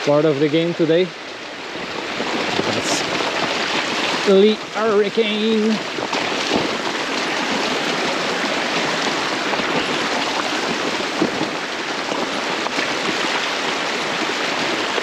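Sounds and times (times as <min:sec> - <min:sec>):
bike tyres rolling on wet stones: 0:00.0 - 0:15.0
water rushing down rocks: 0:00.0 - 0:15.0.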